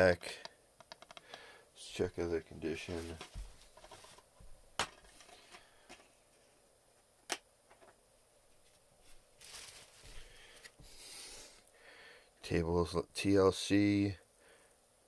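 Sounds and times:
soft handling rustles: 2.4 - 6.6, 8.4 - 10.9.

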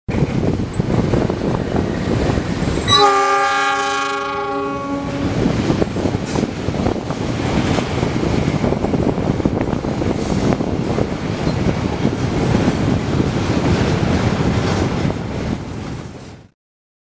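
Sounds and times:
freight train rumbling past: 0.1 - 16.5
locomotive horn chord: 2.9 - 5.4.

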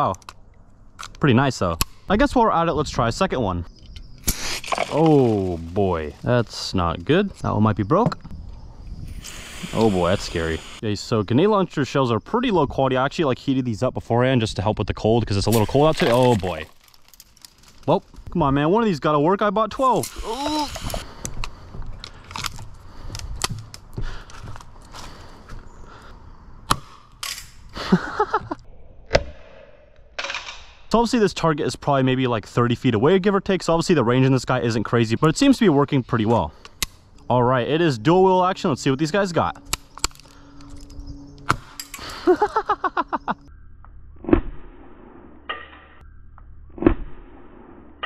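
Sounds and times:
short hiss of pellets spraying: 9.1 - 10.8.

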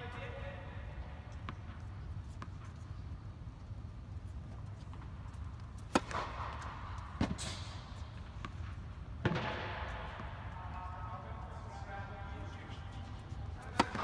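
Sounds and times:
steady low hum: 0.0 - 14.0
racket striking tennis ball: 5.8 - 10.4, 13.1 - 14.0.

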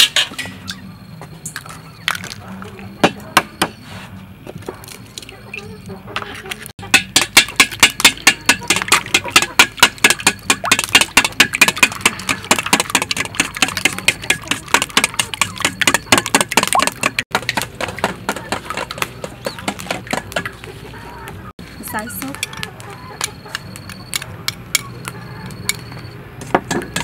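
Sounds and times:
whisk clicking against metal bowl: 6.9 - 17.2.

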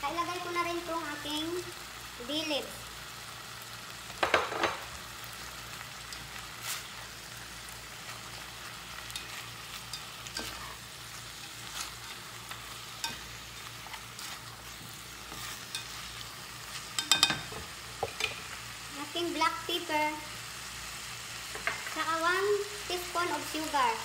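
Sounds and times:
food sizzling in a pot: 0.0 - 24.0
spatula scraping and tapping pot: 16.7 - 18.4.

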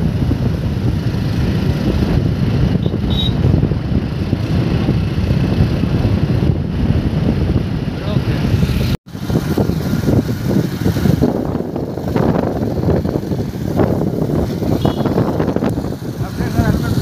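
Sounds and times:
vehicle moving along road: 0.0 - 17.0
wind buffeting microphone: 0.0 - 17.0.

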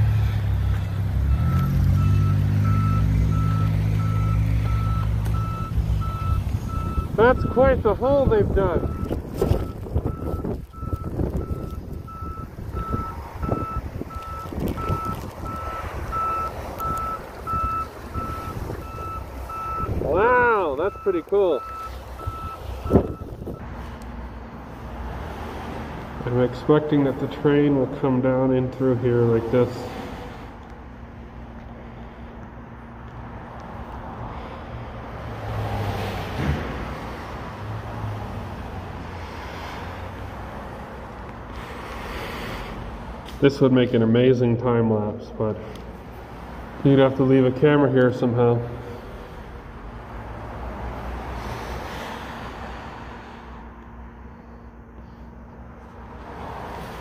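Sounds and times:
road traffic hum: 0.0 - 57.0
vehicle passing: 0.0 - 57.0
reversing alarm beeping: 1.3 - 7.8, 8.7 - 23.7.

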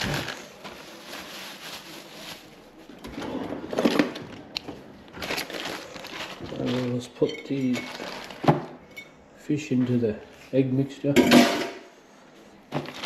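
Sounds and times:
plastic bag rustling: 0.0 - 4.5, 5.1 - 8.8, 12.7 - 13.0.

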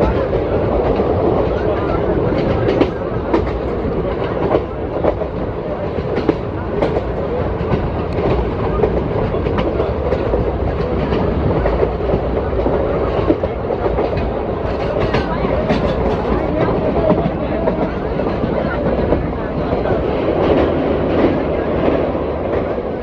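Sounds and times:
train wheels rumbling on rail: 0.0 - 23.0
wheels clacking over rail joints: 0.0 - 23.0.

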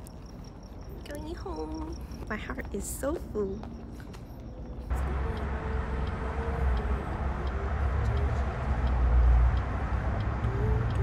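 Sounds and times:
car engine and road rumble: 3.6 - 11.0.

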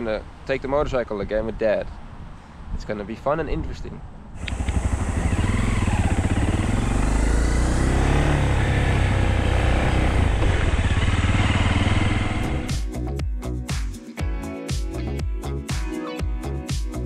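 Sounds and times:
dirt bike engine running: 4.4 - 12.8.

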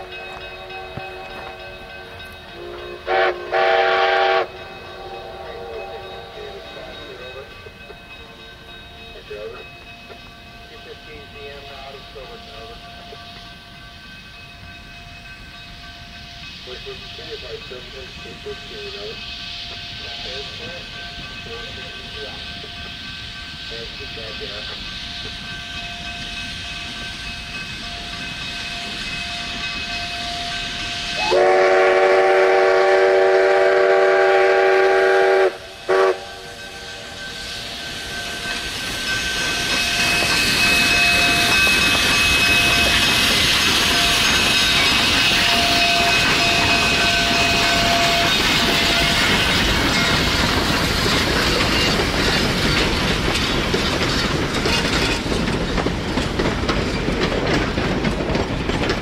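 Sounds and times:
steam locomotive chime whistle: 0.0 - 53.7
train rolling past: 0.0 - 59.0
wheels clicking over rail joints: 38.0 - 59.0.

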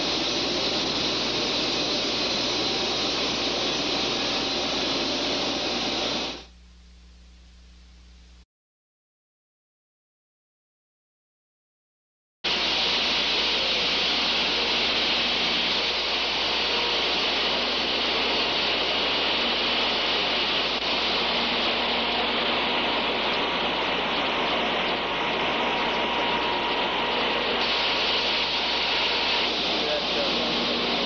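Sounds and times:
spray wand hissing: 0.0 - 6.5, 12.5 - 26.4, 27.1 - 31.0
faint hum: 5.4 - 8.4.

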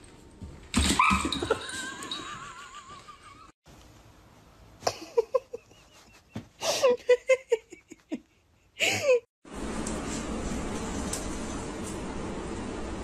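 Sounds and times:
person giggling and laughing: 1.5 - 3.5, 4.8 - 9.3.

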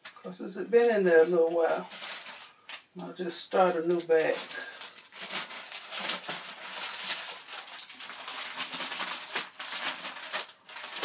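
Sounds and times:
plastic bag crinkling: 1.6 - 2.8, 4.2 - 11.0.

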